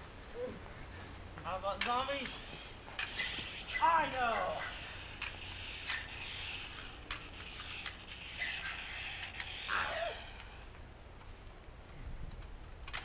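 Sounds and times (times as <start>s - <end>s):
outdoor background hiss: 0.0s - 13.0s
sharp clicks: 5.1s - 9.6s.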